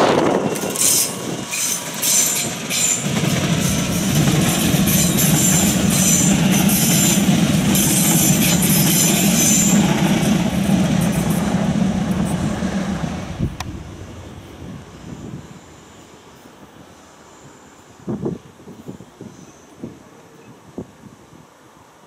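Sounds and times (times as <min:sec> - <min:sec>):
train running hum: 0:00.0 - 0:22.0
train wheel squealing: 0:00.1 - 0:12.8.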